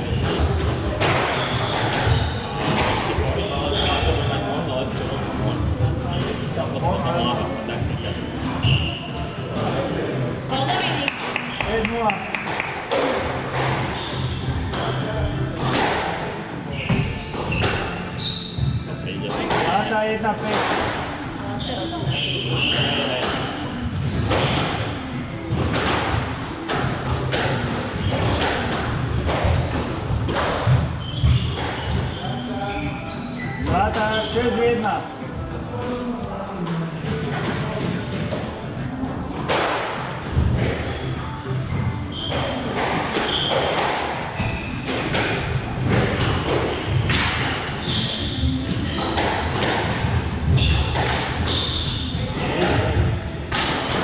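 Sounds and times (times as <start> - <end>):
squash ball hitting rackets and walls: 0.0 - 4.3, 10.7 - 21.3, 22.0 - 32.4, 37.0 - 54.0
shoes squeaking on court floor: 0.1 - 4.7, 7.8 - 9.8, 10.6 - 15.8, 16.5 - 19.7, 21.6 - 29.7, 30.3 - 34.8, 37.3 - 38.9, 40.4 - 53.3
squash ball knocks with echo: 10.7 - 17.9, 48.7 - 51.5.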